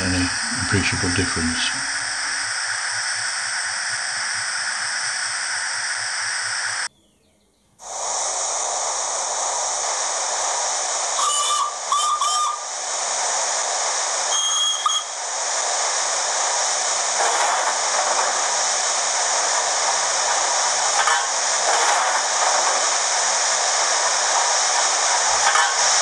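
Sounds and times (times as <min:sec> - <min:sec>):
soft low pulsing: 0:00.0 - 0:04.9
steam hissing from loudspeaker: 0:00.0 - 0:06.9, 0:07.8 - 0:26.0
steam whistle toots: 0:11.1 - 0:12.8, 0:14.2 - 0:15.3.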